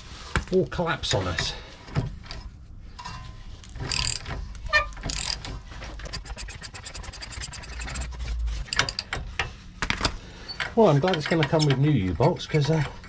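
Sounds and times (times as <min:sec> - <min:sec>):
ratchet wrench clicking rapidly: 0:03.9 - 0:04.2, 0:05.1 - 0:09.0
metallic tool clanks: 0:05.0 - 0:09.5, 0:10.5 - 0:13.0.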